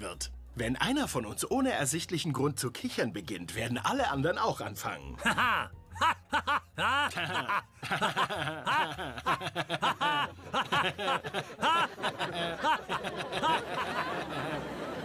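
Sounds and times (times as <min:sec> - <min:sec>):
crowd laughing: 0:05.2 - 0:15.0.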